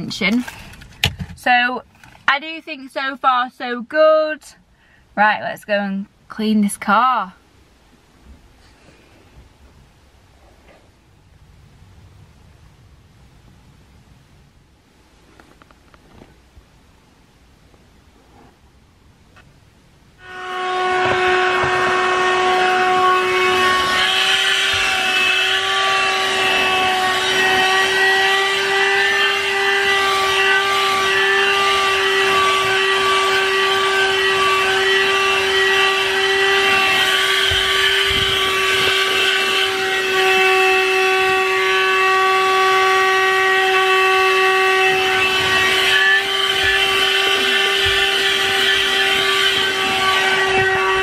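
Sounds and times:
vacuum cleaner motor whine: 0:20.2 - 0:51.0.

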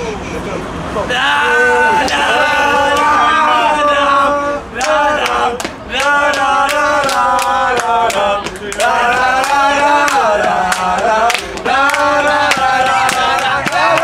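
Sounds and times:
young men singing a chant: 0:01.1 - 0:14.0
hand claps: 0:04.8 - 0:14.0.

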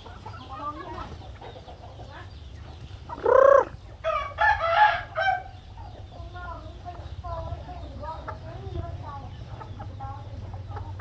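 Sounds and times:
chickens clucking and chirping: 0:00.0 - 0:11.0
loud rising and falling call: 0:03.2 - 0:03.8.

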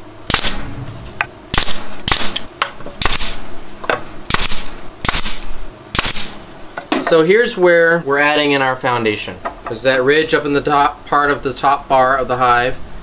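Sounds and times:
nail gun firing: 0:00.3 - 0:00.6, 0:01.5 - 0:03.4, 0:04.3 - 0:06.4.

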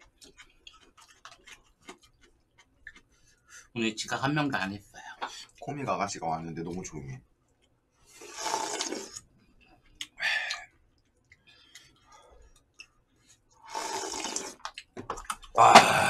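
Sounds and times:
person slurping noodles: 0:08.2 - 0:09.2, 0:13.6 - 0:14.8, 0:15.5 - 0:16.0.

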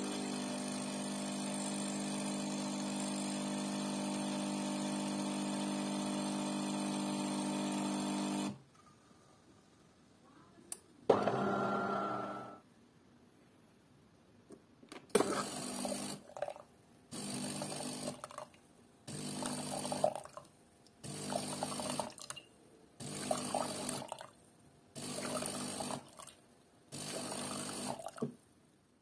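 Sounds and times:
pump humming: 0:00.0 - 0:08.5, 0:21.0 - 0:22.1.

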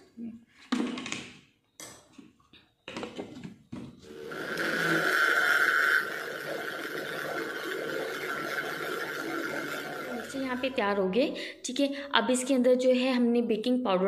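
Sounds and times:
mixer-grinder motor whining: 0:04.0 - 0:10.9.

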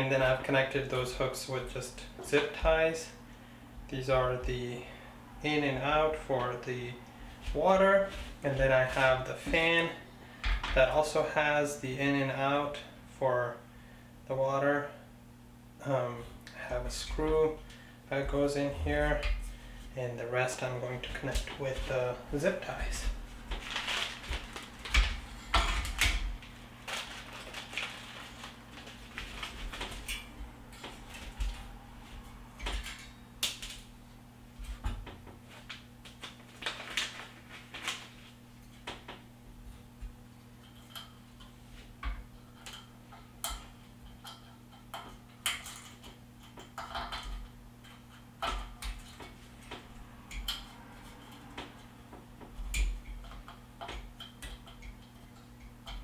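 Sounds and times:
faint low hum: 0:15.8 - 0:27.6
clicks and clinks of parts: 0:40.6 - 0:51.8.

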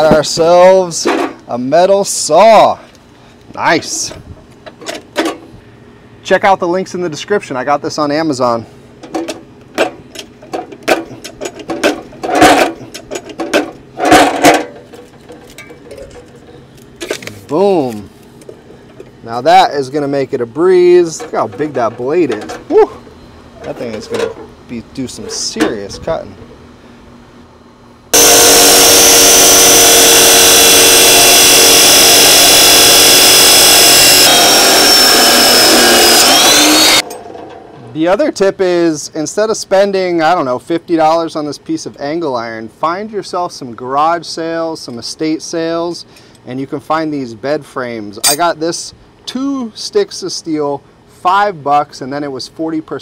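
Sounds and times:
chop saw cutting steel: 0:28.2 - 0:37.2.

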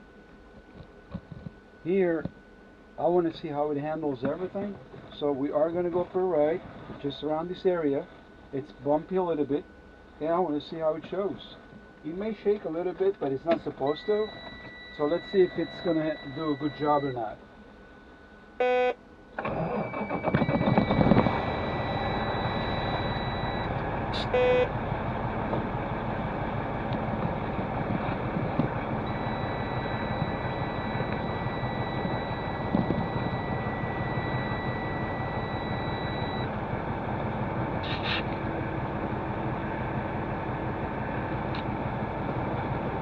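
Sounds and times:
dashboard warning beep: 0:12.4 - 0:17.3, 0:18.6 - 0:19.0, 0:19.7 - 0:24.7, 0:28.1 - 0:36.6
diesel engine idling: 0:20.0 - 0:43.0.

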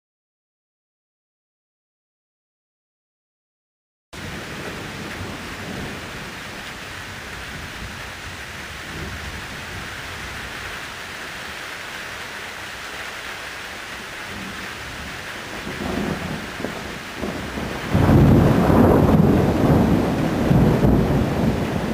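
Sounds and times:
thunder rumble: 0:04.2 - 0:10.6, 0:14.2 - 0:21.9
rain falling: 0:04.2 - 0:21.9.

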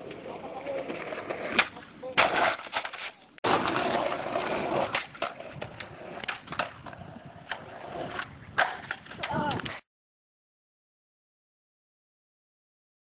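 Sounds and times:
skateboard clacks: 0:00.0 - 0:09.8
skateboard wheels rolling on concrete: 0:00.0 - 0:09.8.

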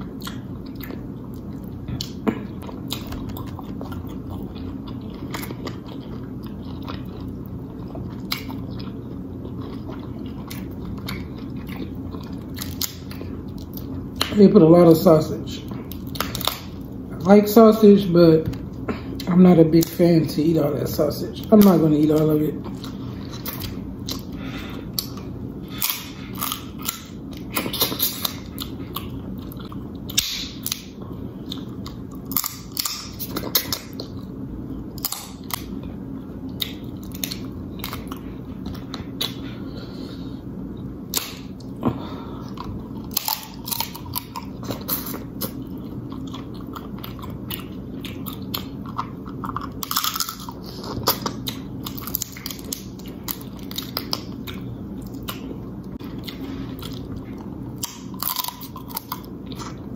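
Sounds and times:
chewing and mouth smacking: 0:00.0 - 0:14.4, 0:15.5 - 0:17.3, 0:21.5 - 0:40.0, 0:42.4 - 0:59.9
crab shells cracking: 0:48.2 - 0:54.3.

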